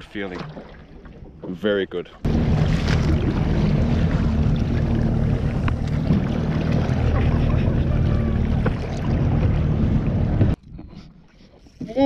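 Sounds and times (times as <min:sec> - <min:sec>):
outboard motor running: 0:02.2 - 0:10.6
wind rumbling on microphone: 0:02.3 - 0:10.9.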